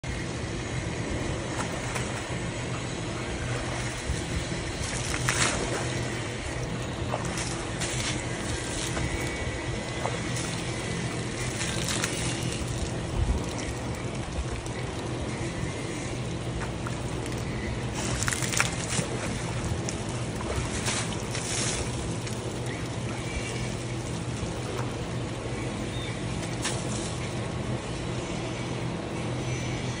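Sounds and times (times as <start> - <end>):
low motor-like hum: 0.0 - 30.0
trunk splashing in muddy puddle: 3.4 - 25.2, 26.3 - 27.4.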